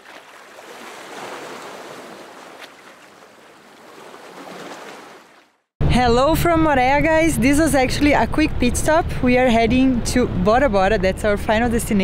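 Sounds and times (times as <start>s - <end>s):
sea water rushing: 0.0s - 5.6s.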